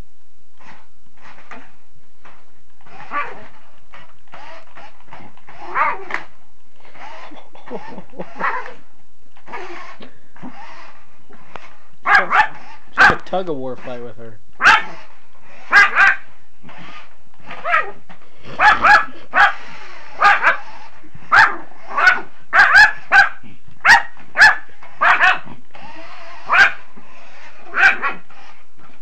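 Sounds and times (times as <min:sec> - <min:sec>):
small dog barking high-pitched: 0:05.7 - 0:06.1, 0:12.0 - 0:13.2, 0:14.6 - 0:15.0, 0:15.7 - 0:16.3, 0:17.6 - 0:18.0, 0:18.6 - 0:20.7, 0:21.3 - 0:25.5, 0:26.4 - 0:26.9, 0:27.7 - 0:28.3.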